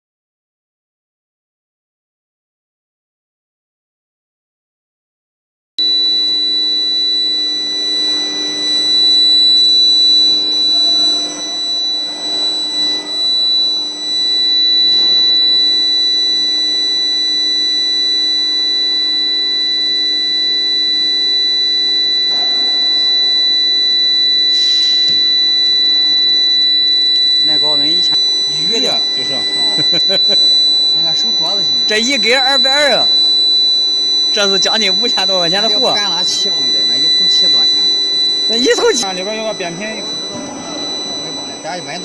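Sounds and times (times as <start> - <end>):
induction furnace high-pitched whine: 5.8 - 42.0.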